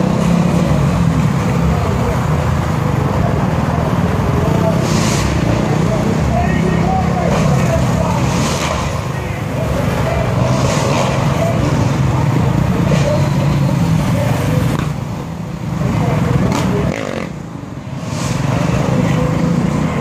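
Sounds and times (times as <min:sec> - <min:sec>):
dirt bike engines running: 0:00.0 - 0:20.0
voices in background: 0:00.8 - 0:20.0.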